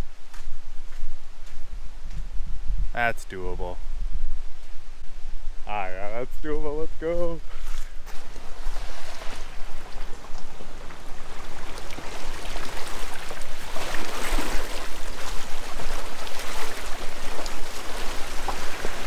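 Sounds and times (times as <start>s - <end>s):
tyres splashing through water: 8.1s - 19.0s.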